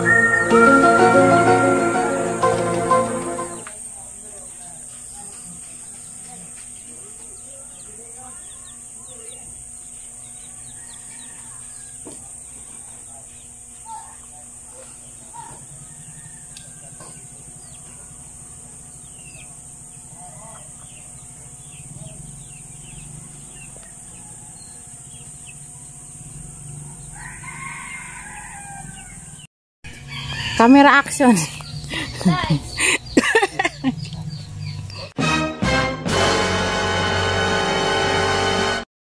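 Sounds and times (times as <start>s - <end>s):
rooster crowing: 0.0s - 2.4s, 10.4s - 12.2s, 15.4s - 17.4s, 23.2s - 25.3s, 26.8s - 31.0s.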